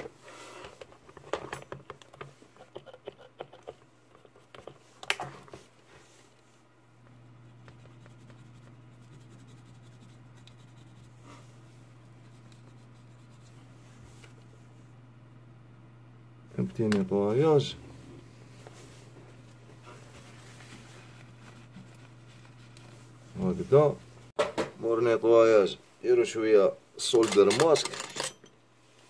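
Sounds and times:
steady low hum: 0:00.0 - 0:27.1
brush scrubbing circuit board: 0:07.5 - 0:11.5, 0:12.1 - 0:13.8.

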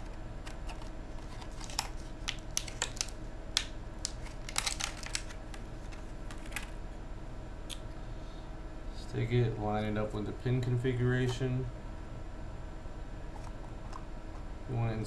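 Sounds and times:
faint steady hum: 0:00.0 - 0:15.0
plastic clamshell clicking and crackling: 0:00.5 - 0:05.3.

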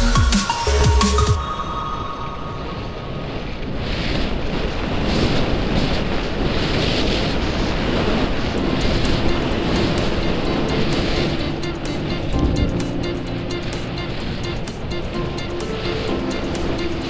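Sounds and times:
wind rushing over microphone: 0:01.4 - 0:17.0
skis hissing on snow: 0:04.0 - 0:17.0.

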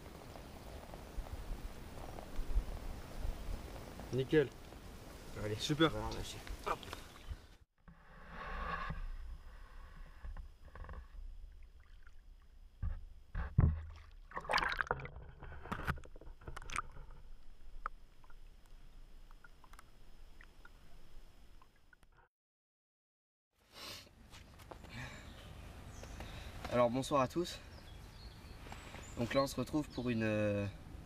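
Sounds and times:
water sloshing and splashing: 0:10.7 - 0:22.1.

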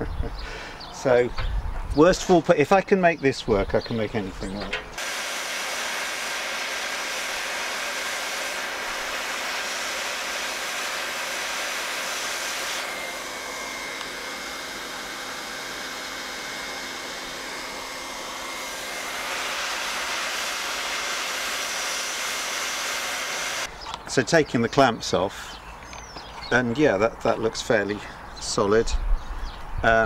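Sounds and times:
hot-air welding gun blowing: 0:04.9 - 0:23.7.

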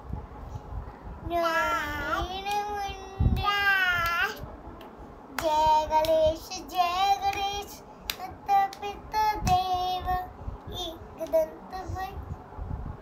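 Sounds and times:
child singing: 0:01.3 - 0:04.4, 0:05.4 - 0:12.3
hand claps: 0:02.5 - 0:02.7, 0:04.0 - 0:07.5, 0:08.1 - 0:09.6.

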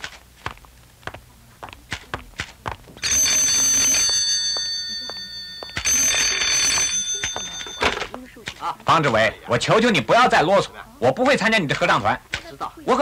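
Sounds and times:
telephone bell ringing: 0:03.0 - 0:08.2.

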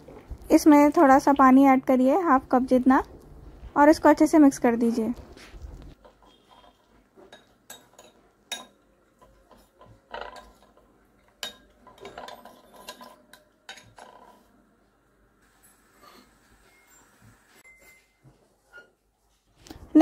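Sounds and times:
spoon clinking and scraping bowl: 0:06.0 - 0:14.5, 0:15.4 - 0:18.1.

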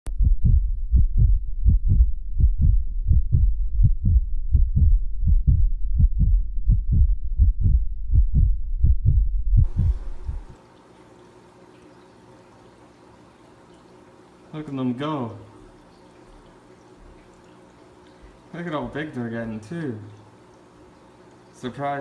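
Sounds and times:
muffled bass thumps: 0:00.1 - 0:10.6.

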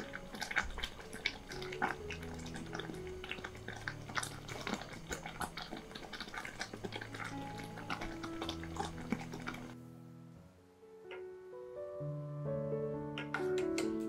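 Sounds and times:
thick sauce bubbling and popping: 0:00.0 - 0:09.8
soft background music: 0:00.0 - 0:14.0.

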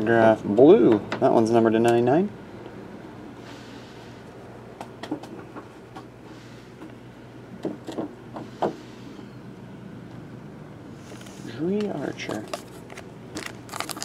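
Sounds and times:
steady low hum: 0:00.0 - 0:14.0
trading cards clicking and rustling: 0:11.1 - 0:14.0.

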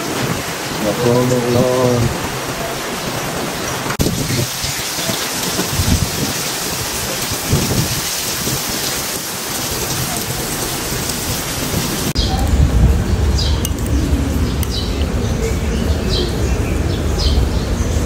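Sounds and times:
heavy rain pouring: 0:00.0 - 0:18.0
low rumbles: 0:09.7 - 0:18.0.

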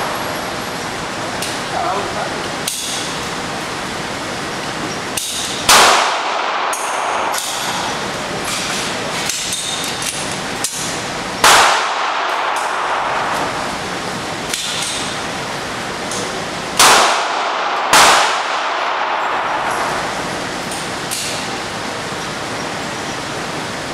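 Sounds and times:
handgun shots echoing indoors: 0:05.2 - 0:08.6, 0:09.2 - 0:13.8, 0:14.5 - 0:15.2, 0:16.8 - 0:21.6
faint gunshots: 0:16.8 - 0:19.6.

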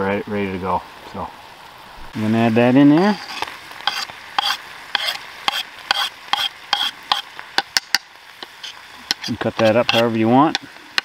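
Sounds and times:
faint pan sizzle: 0:00.0 - 0:11.0
utensils scraping cast iron pan: 0:03.0 - 0:11.0.

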